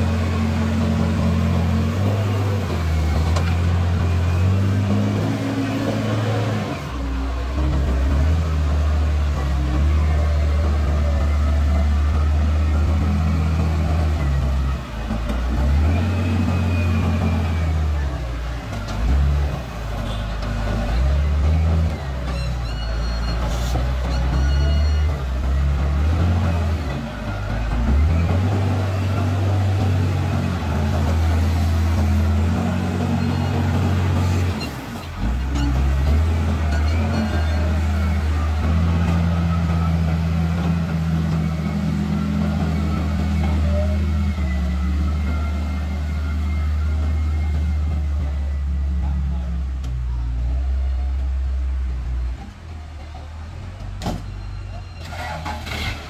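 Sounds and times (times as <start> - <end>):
diesel engine running under load: 0.0 - 56.0.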